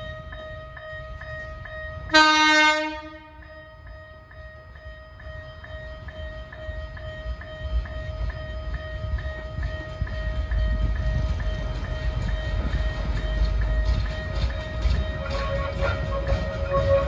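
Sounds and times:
railcar running rumble: 0:00.0 - 0:17.0
pulsing ringing tone: 0:03.2 - 0:17.0
wheels clicking over rail joints: 0:07.3 - 0:17.0.

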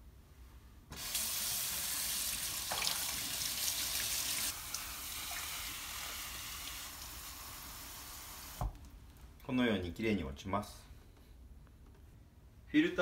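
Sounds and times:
tap water splashing on filter: 0:02.6 - 0:03.1.

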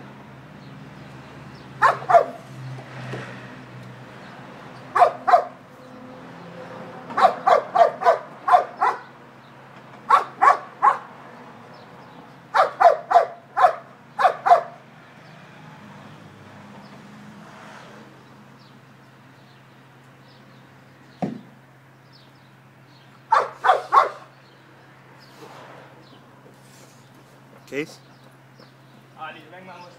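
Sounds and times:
dog barking: 0:01.8 - 0:02.5, 0:04.9 - 0:05.6, 0:07.1 - 0:09.2, 0:10.1 - 0:11.1, 0:12.5 - 0:14.8, 0:23.3 - 0:24.3
single thump: 0:21.2 - 0:21.5.

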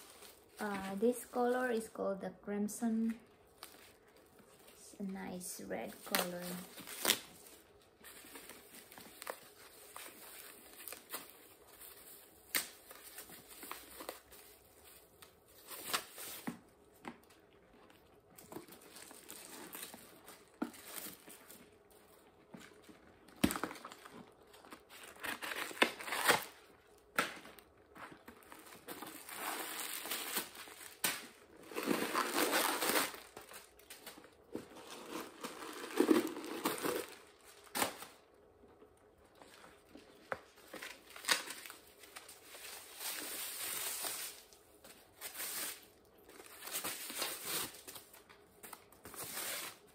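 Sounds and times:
paper wrapping crinkling: 0:03.4 - 0:38.3.

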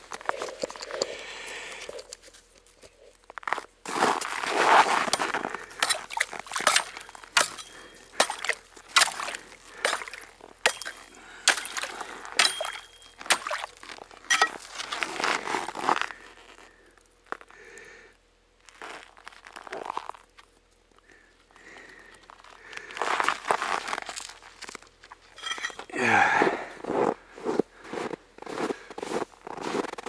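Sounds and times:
footsteps crunching in snow: 0:03.3 - 0:10.2, 0:26.8 - 0:30.0.

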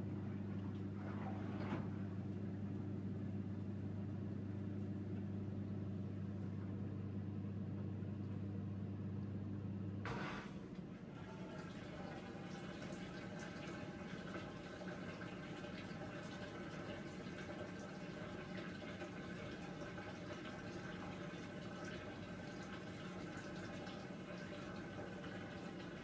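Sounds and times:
water running into washer drum: 0:00.0 - 0:03.8, 0:10.0 - 0:26.0.

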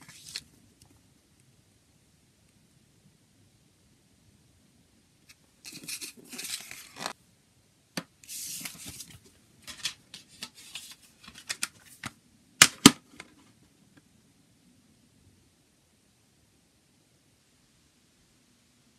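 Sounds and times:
paper rustling and sliding: 0:00.0 - 0:00.5, 0:05.7 - 0:07.2, 0:08.2 - 0:12.1
plastic case snapping shut: 0:12.6 - 0:13.3.

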